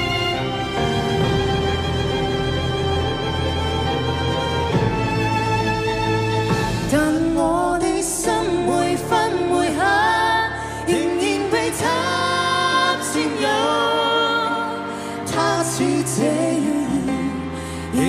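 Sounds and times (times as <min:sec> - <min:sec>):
instrumental backing: 0:00.0 - 0:10.3
woman singing a ballad: 0:06.8 - 0:18.0.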